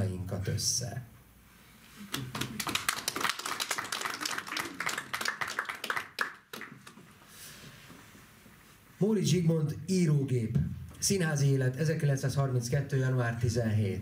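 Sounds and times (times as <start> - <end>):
audience applauding: 2.1 - 7.0.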